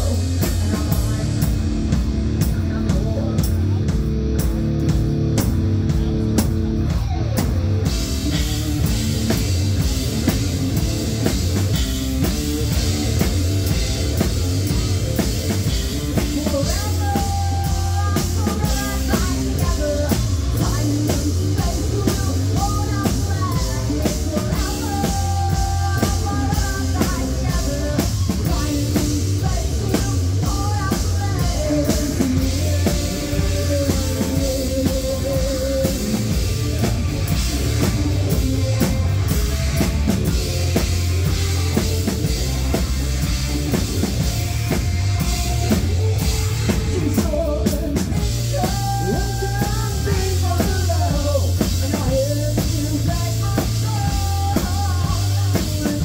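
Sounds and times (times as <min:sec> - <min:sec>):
melodic lead line: 0:00.0 - 0:55.6
live rock band playing: 0:00.0 - 0:56.0.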